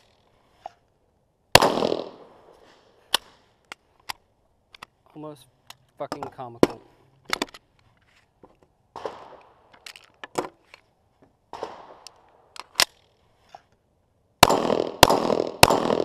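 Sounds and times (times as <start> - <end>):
loud pistol shot: 1.6 - 2.3, 9.0 - 9.4, 11.5 - 12.0, 14.4 - 16.0
pistol metallic clicks: 11.5 - 13.2.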